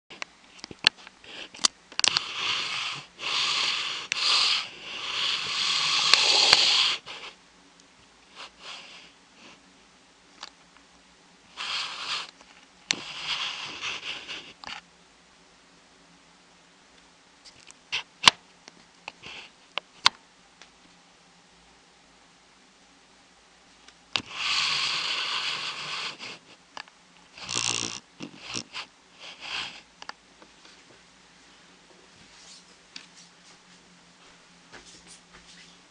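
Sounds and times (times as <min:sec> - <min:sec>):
broom sweeping: 0:32.2 - 0:35.9.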